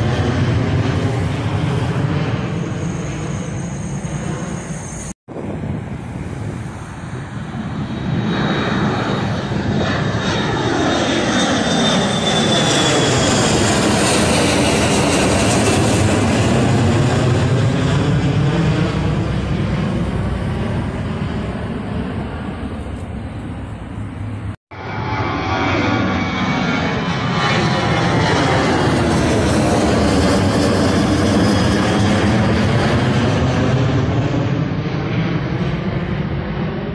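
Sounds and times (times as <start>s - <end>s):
high fan whine: 0.0s - 7.8s
jet airliner passing overhead: 0.0s - 36.9s.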